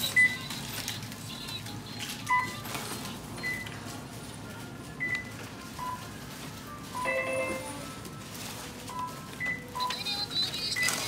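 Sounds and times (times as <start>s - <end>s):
low store hum: 0.0s - 11.0s
register beeps: 8.9s - 11.0s.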